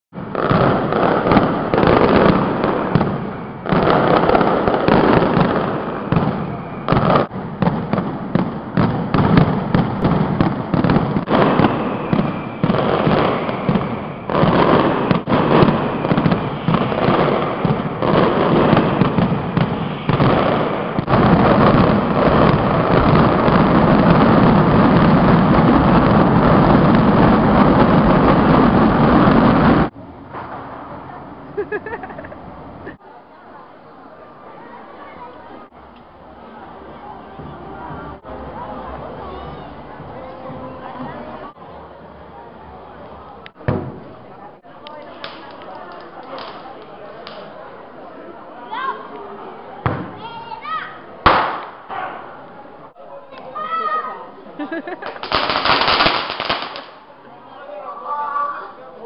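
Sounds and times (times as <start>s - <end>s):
firecracker bangs: 0.2s - 31.0s, 43.6s - 44.2s, 49.8s - 50.3s, 51.2s - 52.0s, 55.0s - 57.1s.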